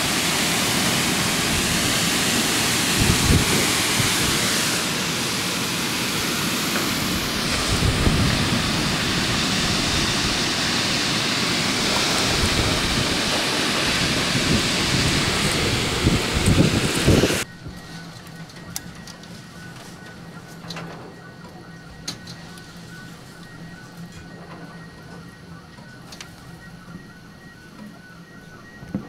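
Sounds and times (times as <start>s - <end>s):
heavy rain hissing: 0.0s - 17.4s
wind buffeting microphone: 0.0s - 18.0s.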